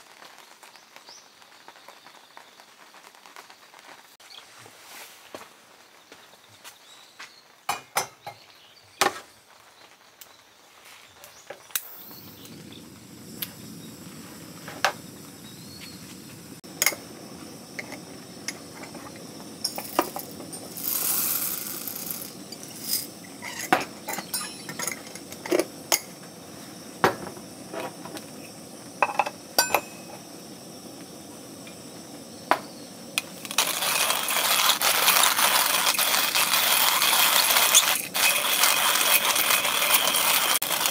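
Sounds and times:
coffee beans and glassware clinking: 0:17.8 - 0:26.2, 0:29.0 - 0:30.2, 0:33.4 - 0:40.9
beans rattling out of glass jar: 0:19.7 - 0:25.1, 0:33.4 - 0:40.9.

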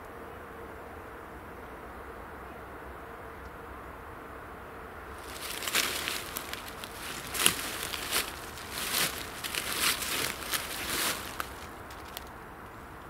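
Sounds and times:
footsteps crunching dry leaves: 0:05.1 - 0:12.3.

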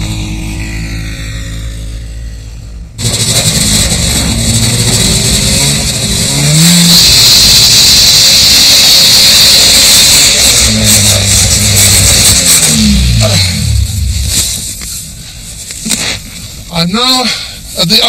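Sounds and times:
snowmobile engine running: 0:00.0 - 0:15.0
loud hiss: 0:03.0 - 0:13.2.

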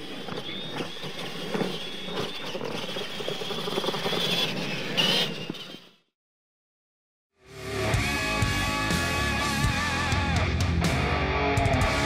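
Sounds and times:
toy truck motor whine: 0:01.4 - 0:06.1.

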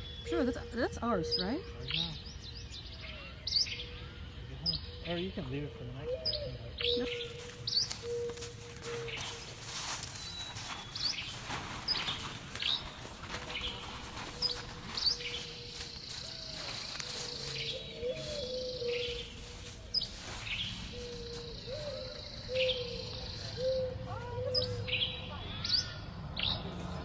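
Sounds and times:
songbirds chirping: 0:00.0 - 0:27.0
dry leaves crunching underfoot: 0:07.0 - 0:25.6, 0:26.6 - 0:27.0
plastic tarp rustling: 0:08.5 - 0:17.3.

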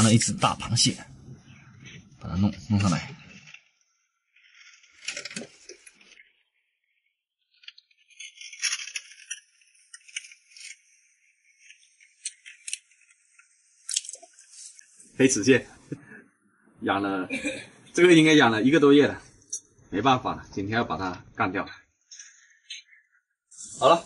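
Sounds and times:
rocks clinking against rock and glass: 0:08.1 - 0:10.8.

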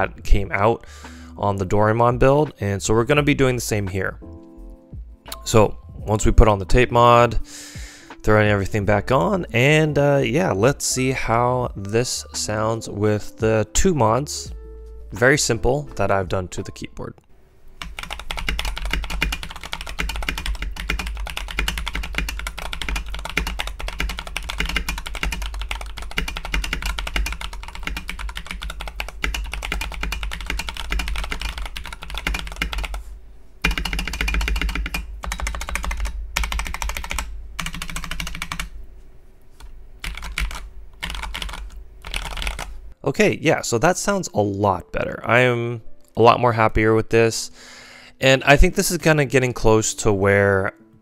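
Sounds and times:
mechanical keyboard typing: 0:17.8 - 0:33.0, 0:33.6 - 0:38.7, 0:40.0 - 0:42.7.

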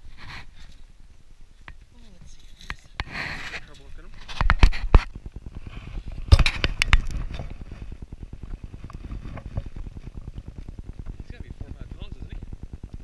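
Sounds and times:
faint rapid rustling: 0:00.0 - 0:13.0
knocks and scrapes on gravel: 0:02.0 - 0:10.7.

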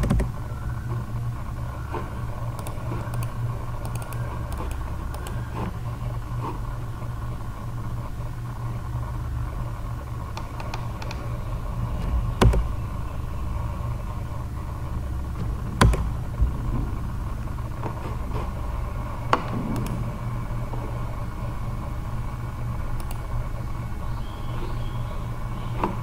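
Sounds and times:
low background hum: 0:00.0 - 0:26.0
computer mouse clicks: 0:01.9 - 0:05.8, 0:10.3 - 0:11.3, 0:23.0 - 0:23.3.

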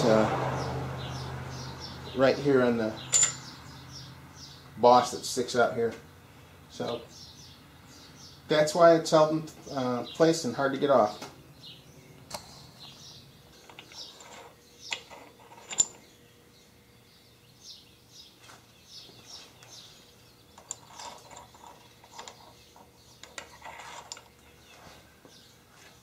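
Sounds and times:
clicks and knocks of metal: 0:03.1 - 0:03.5.

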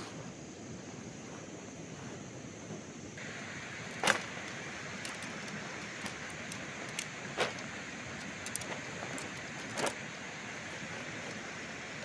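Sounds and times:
rushing background noise: 0:00.0 - 0:12.0
tent pole sections clicking: 0:03.2 - 0:12.0.

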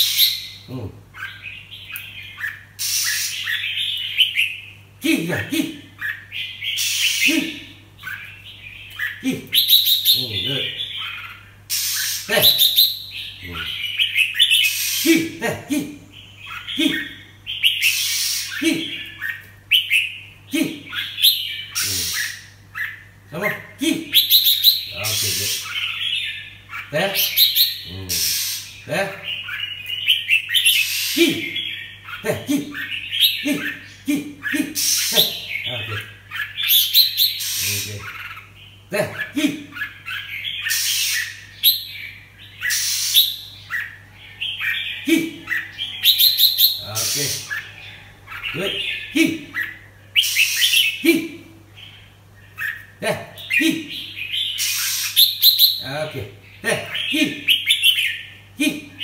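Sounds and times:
bulbul calling: 0:00.0 - 0:15.5, 0:16.1 - 0:58.4
bird chirping: 0:00.0 - 0:59.0
harsh rasping bird notes: 0:02.8 - 0:04.4, 0:06.4 - 0:07.6, 0:16.6 - 0:19.9, 0:27.1 - 0:31.9, 0:32.8 - 0:38.2.

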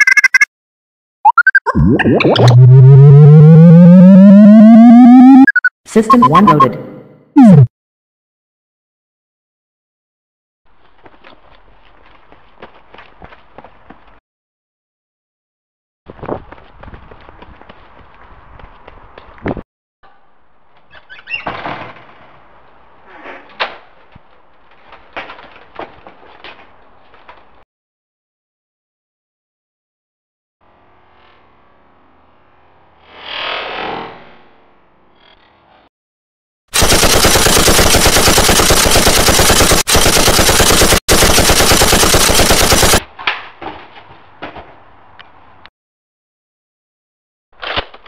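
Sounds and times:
automatic machine-gun fire: 0:36.8 - 0:43.0.

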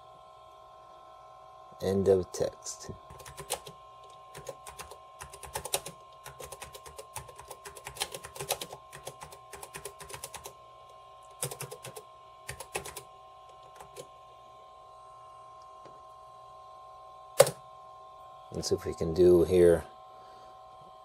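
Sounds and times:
laptop keyboard typing: 0:03.1 - 0:10.6, 0:11.2 - 0:14.1, 0:17.4 - 0:17.6.

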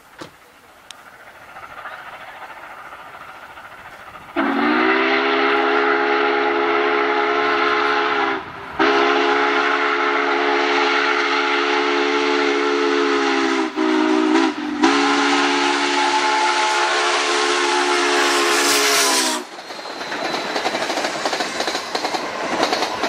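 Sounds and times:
steam locomotive chime whistle: 0:04.4 - 0:21.4.

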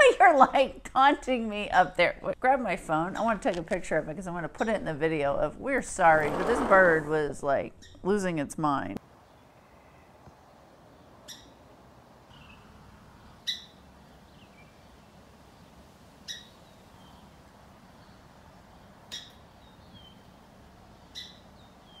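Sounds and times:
songbird harsh calls: 0:11.2 - 0:11.6, 0:12.3 - 0:14.8, 0:16.2 - 0:17.3, 0:18.8 - 0:20.4, 0:21.0 - 0:22.0.

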